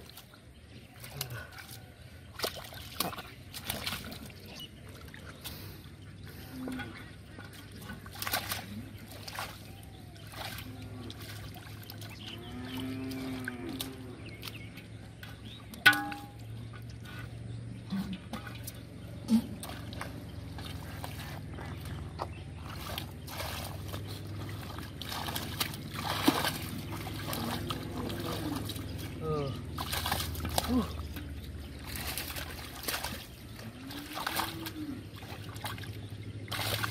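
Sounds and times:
hands splashing in muddy water: 0.0 - 5.7, 7.3 - 12.4, 18.3 - 36.9
metal pot clank: 15.8 - 16.4.

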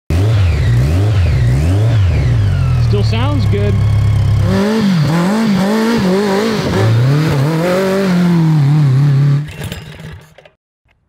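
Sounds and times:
kart engine revving: 0.1 - 10.3.

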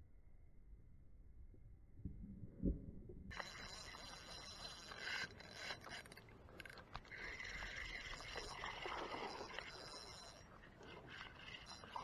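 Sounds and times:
fishing reel cranking: 3.4 - 12.0.

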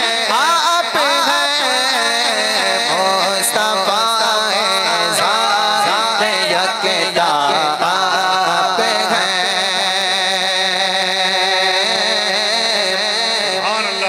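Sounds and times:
man singing into microphone: 0.0 - 14.0.

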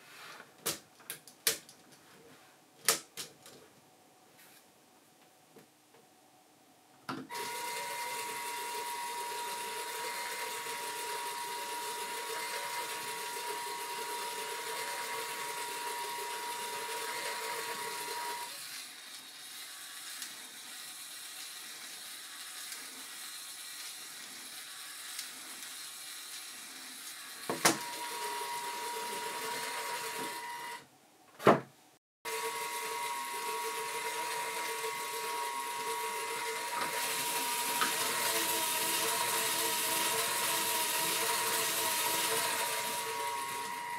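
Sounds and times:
toy electric motor whirring: 7.3 - 30.8, 32.3 - 43.9.

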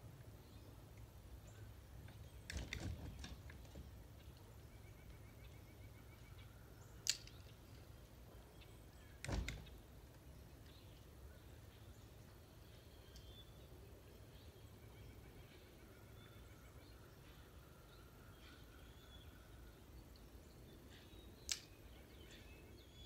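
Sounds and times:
low steady background noise: 0.0 - 23.0
sharp click: 21.4 - 21.8.

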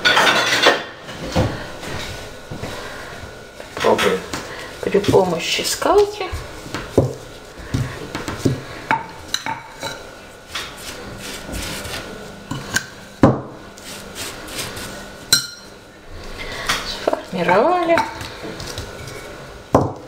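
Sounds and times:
rolling pin rubbing over dough: 2.0 - 8.9, 10.2 - 12.8, 13.7 - 15.3.

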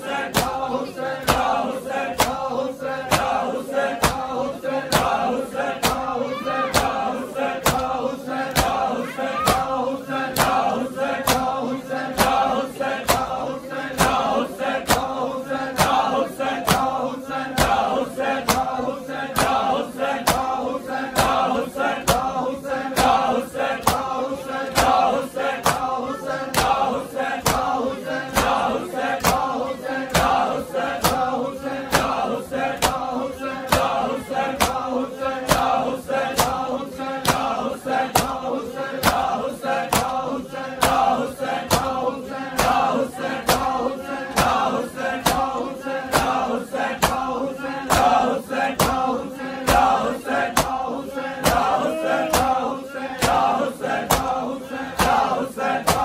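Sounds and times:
crowd: 0.0 - 56.0
men chanting in unison: 0.0 - 56.0
hands slapping chests: 2.2 - 2.5, 3.1 - 3.4, 4.0 - 4.3, 4.9 - 6.1, 7.6 - 11.6, 12.2 - 13.4, 14.0 - 15.2, 18.4 - 18.8, 23.0 - 24.1, 24.7 - 25.9, 26.5 - 27.7, 28.3 - 29.5, 34.6 - 34.9, 37.2 - 38.4, 39.0 - 40.2, 45.2 - 45.5, 48.8 - 49.0, 49.7 - 50.8, 51.4 - 52.6, 55.0 - 56.0.

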